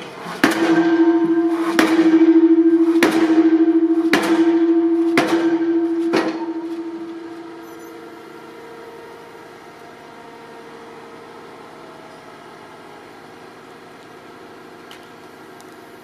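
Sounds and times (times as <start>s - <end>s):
pile driver hammer blows: 0.0s - 8.2s
steady tone: 0.4s - 8.4s.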